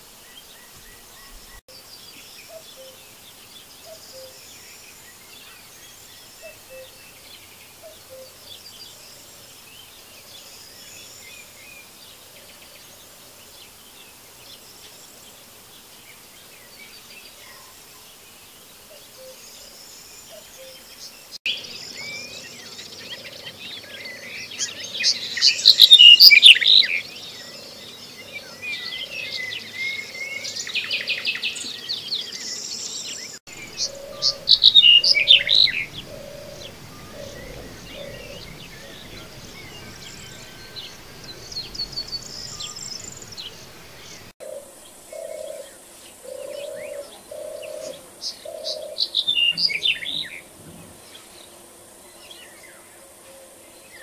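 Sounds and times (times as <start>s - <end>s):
bunting singing: 18.9s - 50.4s.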